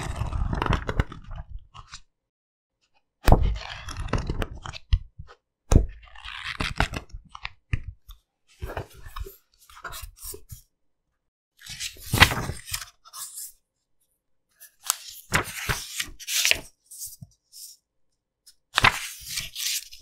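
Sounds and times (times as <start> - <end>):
book pages flipping: 8.6 - 10.7, 11.6 - 13.6, 14.6 - 17.8, 18.5 - 20.0.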